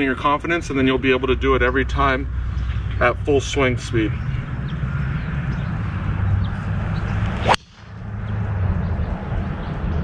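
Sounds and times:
golf club swish: 7.2s - 7.8s
golf club striking ball: 7.2s - 7.9s.

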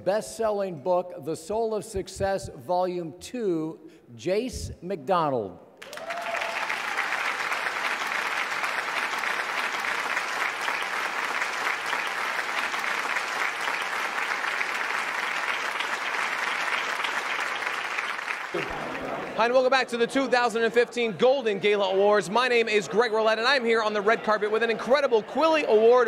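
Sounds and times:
audience applauding: 5.8s - 19.8s.

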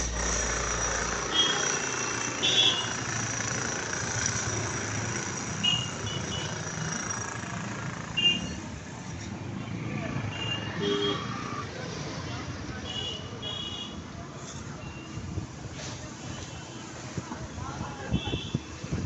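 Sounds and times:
vehicle engines running: 0.0s - 12.8s.

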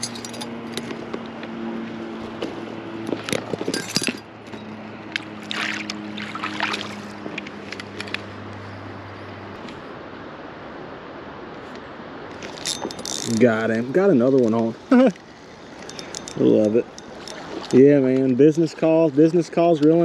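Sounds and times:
water splashing and dripping: 4.4s - 8.2s.

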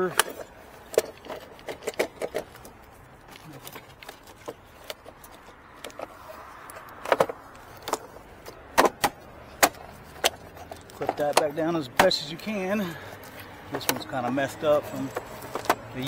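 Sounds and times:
plastic scraping: 0.0s - 16.0s
hard plastic clicks and knocks: 6.9s - 12.2s.

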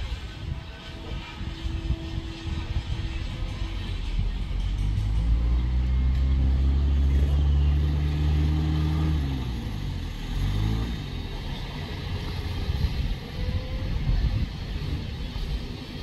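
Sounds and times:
pickup truck engine passing: 4.8s - 16.0s.

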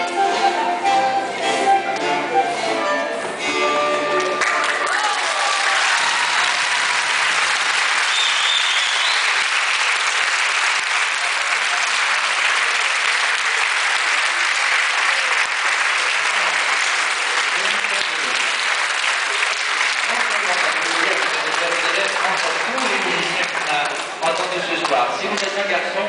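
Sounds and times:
renaissance dance tune ensemble: 0.0s - 5.2s
crowd applauding: 4.1s - 26.0s.

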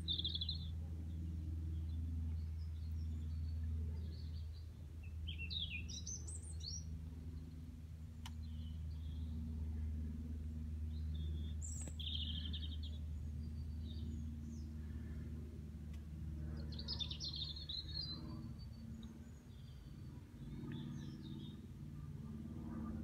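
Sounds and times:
birds chirping: 0.0s - 9.9s, 10.8s - 23.0s
low background hum: 0.0s - 23.0s.

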